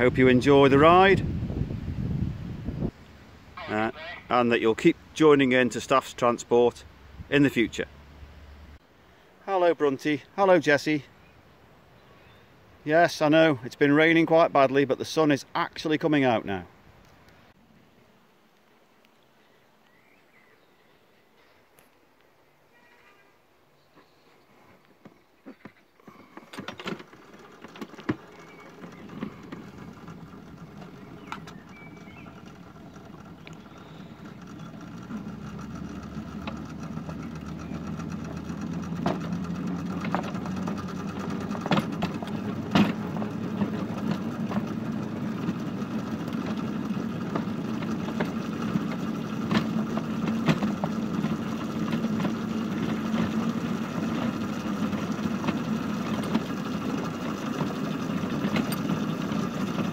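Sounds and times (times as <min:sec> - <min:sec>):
locomotive engine running: 0:26.0 - 0:59.9
sharp clicks and knocks: 0:26.4 - 0:59.9.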